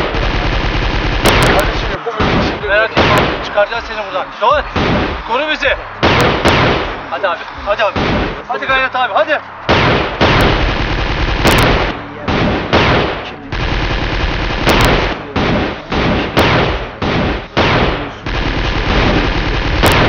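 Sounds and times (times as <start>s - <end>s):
automatic gunfire bursts: 0.0s - 3.6s, 5.9s - 7.0s, 9.6s - 20.0s.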